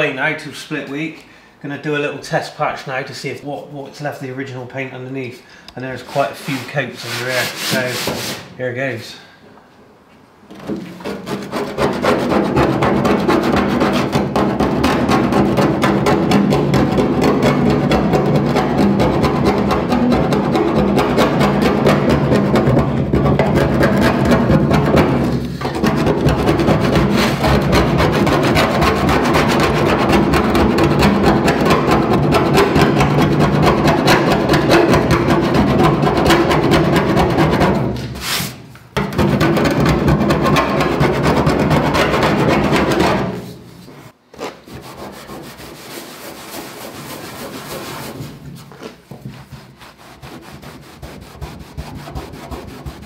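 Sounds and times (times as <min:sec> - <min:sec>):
abrasive block scrubbing metal: 0:06.0 - 0:08.5
music: 0:12.0 - 0:38.0.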